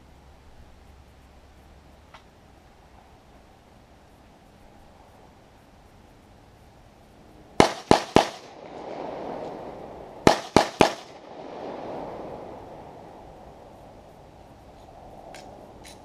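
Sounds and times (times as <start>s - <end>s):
pistol shots with echo: 7.6s - 8.8s, 10.2s - 11.4s.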